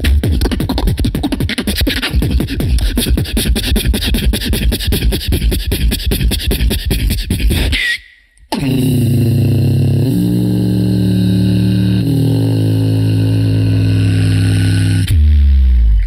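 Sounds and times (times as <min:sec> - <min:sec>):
person beatboxing into a microphone: 0:00.0 - 0:15.8.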